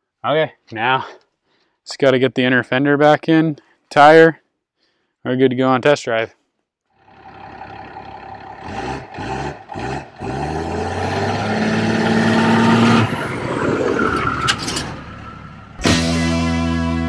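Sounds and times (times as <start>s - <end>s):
diesel truck accelerating past: 7.0s - 16.4s.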